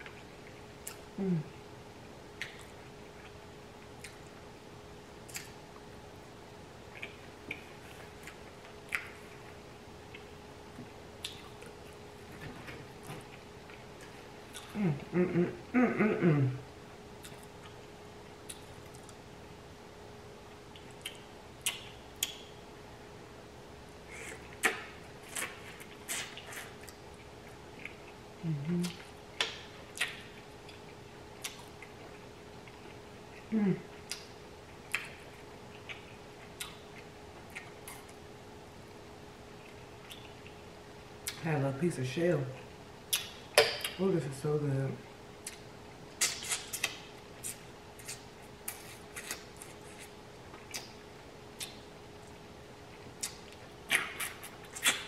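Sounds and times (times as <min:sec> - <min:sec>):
person chewing with mouth clicks: 0:00.0 - 0:01.6, 0:02.4 - 0:04.3, 0:05.2 - 0:05.6, 0:06.9 - 0:12.0, 0:12.6 - 0:15.7, 0:17.2 - 0:19.2, 0:20.7 - 0:22.5, 0:24.1 - 0:38.2, 0:39.6 - 0:40.6, 0:42.6 - 0:44.0, 0:45.4 - 0:55.0
person humming: 0:01.2 - 0:01.6, 0:14.7 - 0:16.6, 0:28.4 - 0:29.0, 0:33.5 - 0:33.9.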